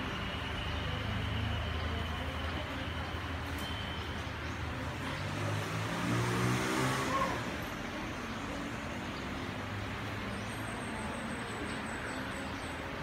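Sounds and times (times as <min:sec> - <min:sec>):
vehicle engine passing by: 0:04.2 - 0:10.2.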